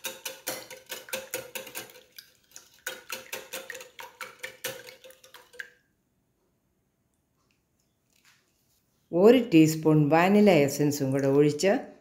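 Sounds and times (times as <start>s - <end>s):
whisk clinking in glass bowl: 0.0s - 5.6s.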